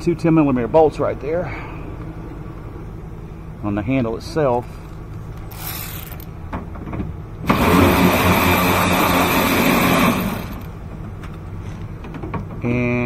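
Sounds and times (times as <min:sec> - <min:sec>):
power ratchet running: 0:05.4 - 0:06.4, 0:07.5 - 0:10.8.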